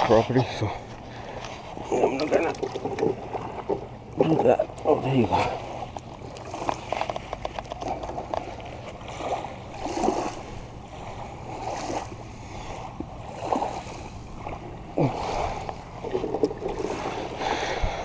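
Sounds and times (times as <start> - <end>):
small waves washing in: 5.0 - 18.0.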